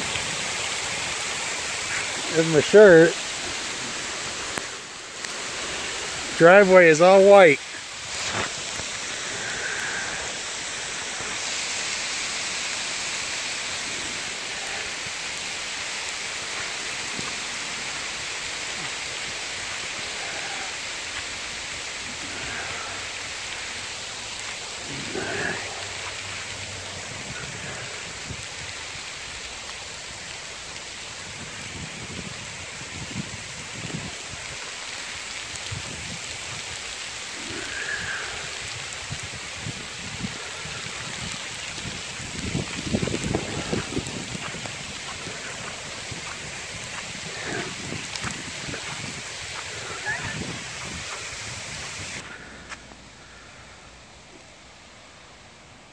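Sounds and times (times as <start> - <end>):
hail and sleet falling: 0.0 - 54.9
wind buffeting microphone: 38.6 - 52.3.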